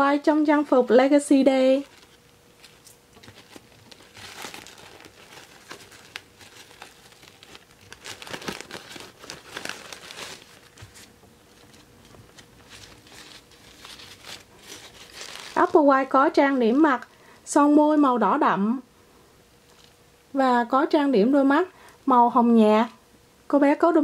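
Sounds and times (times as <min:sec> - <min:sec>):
doll dress fabric rustling: 0:00.6 - 0:17.1.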